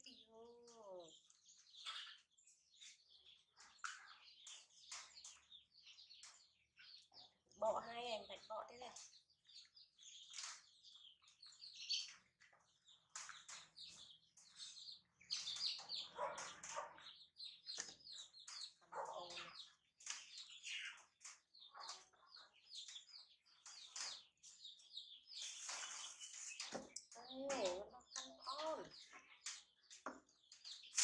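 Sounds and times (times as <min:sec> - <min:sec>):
small animal chirping and squeaking: 0:07.0 - 0:31.0.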